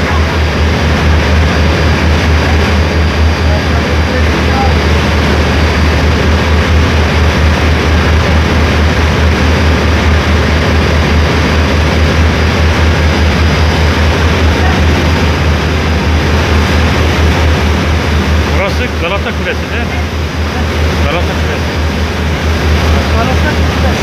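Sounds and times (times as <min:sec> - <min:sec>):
churning wake rushing: 0:00.0 - 0:24.0
ferry engine drone: 0:00.0 - 0:24.0.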